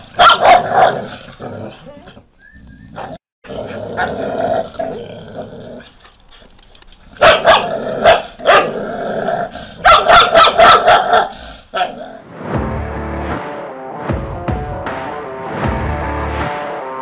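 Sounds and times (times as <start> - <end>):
puppies barking: 0.0 - 1.2, 7.2 - 8.8, 9.8 - 12.0
puppies growling: 1.0 - 6.5.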